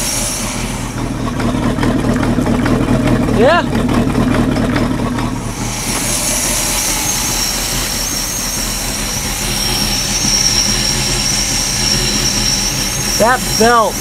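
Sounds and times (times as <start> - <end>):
high-pitched belt squeal: 0.0 - 1.4, 5.4 - 14.0
boat engine running: 0.0 - 14.0.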